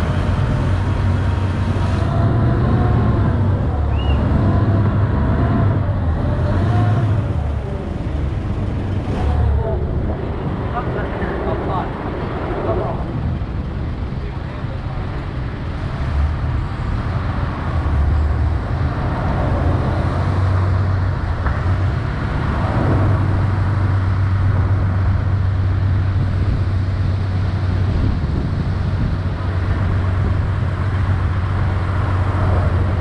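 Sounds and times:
engine running with low hum: 0:00.0 - 0:33.0.

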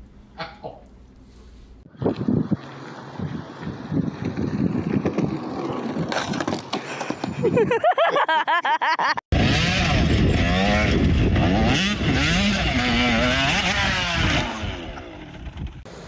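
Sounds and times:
bike crashing: 0:03.0 - 0:07.6
dirt bike engine revving: 0:09.3 - 0:16.0.

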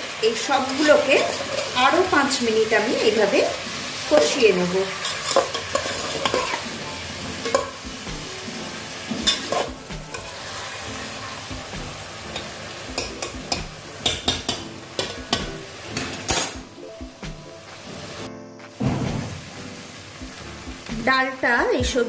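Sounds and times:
food sizzling in pot: 0:00.0 - 0:22.0
metal spatula scraping pot: 0:00.6 - 0:02.3, 0:04.1 - 0:11.5.

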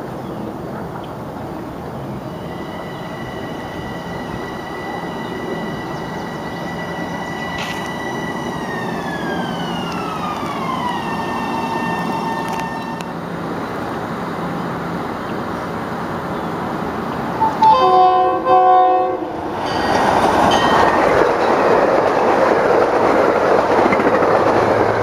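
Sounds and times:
train wheel and rail noise: 0:00.0 - 0:25.0
traction motor whine: 0:02.3 - 0:13.1.

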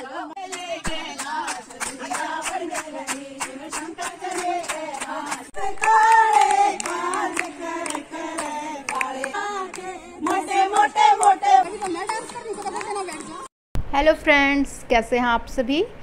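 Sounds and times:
women singing together: 0:00.0 - 0:13.5
hands clapping to a beat: 0:00.4 - 0:13.4.

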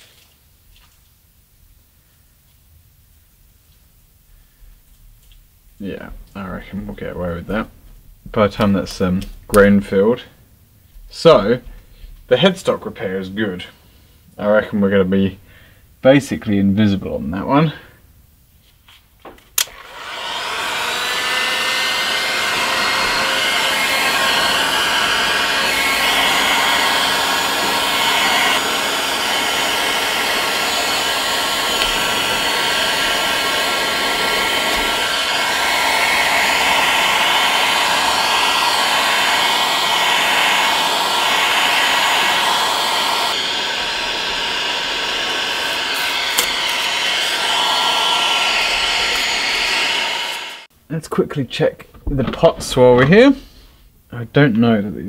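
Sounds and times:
heat gun switch click: 0:19.6 - 0:19.8, 0:46.3 - 0:46.9
heat gun blowing: 0:19.6 - 0:50.7.

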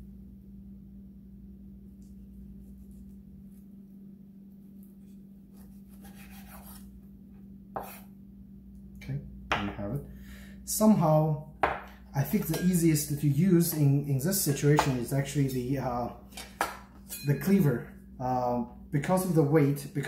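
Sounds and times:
knife scraping through meat: 0:05.5 - 0:06.9, 0:07.8 - 0:08.1.

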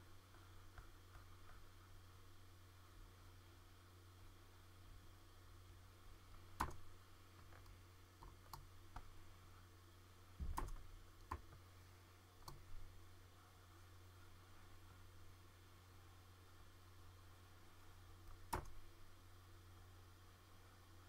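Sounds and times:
faint low hum: 0:00.0 - 0:21.0
computer mouse and keyboard clicks: 0:06.6 - 0:06.8, 0:10.4 - 0:11.6, 0:12.4 - 0:12.7, 0:18.3 - 0:18.8.

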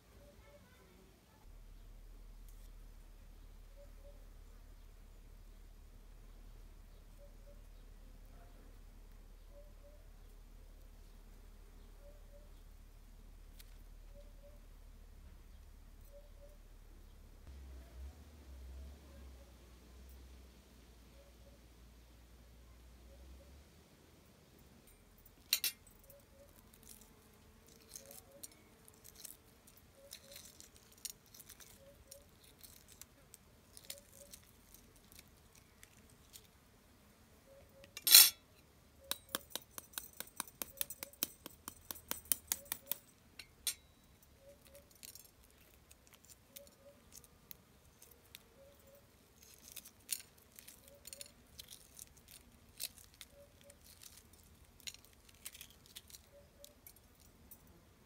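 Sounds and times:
shell crackling clicks: 0:39.1 - 0:43.5.

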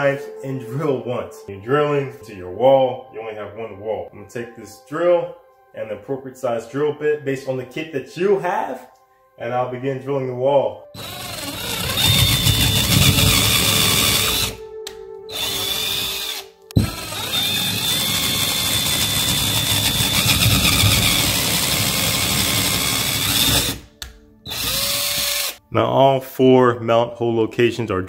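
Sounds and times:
cordless drill boring drywall: 0:11.0 - 0:14.6, 0:15.3 - 0:23.8, 0:24.5 - 0:25.6.

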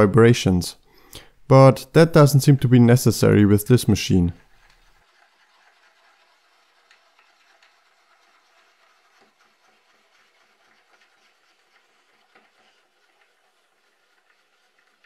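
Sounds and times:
faint ticks and rubbing of crank: 0:04.4 - 0:15.0.

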